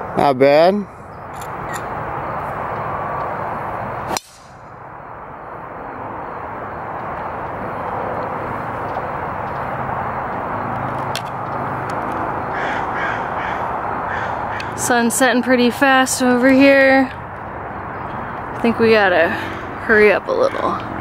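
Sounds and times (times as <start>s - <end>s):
steady outdoor hiss: 0.0s - 21.0s
crows cawing: 12.3s - 14.8s.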